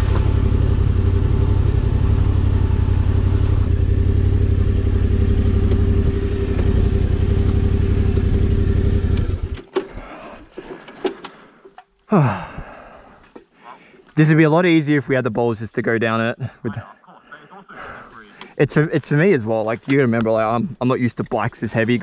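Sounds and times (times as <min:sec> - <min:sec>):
motorcycle engine idling: 0:00.0 - 0:09.6.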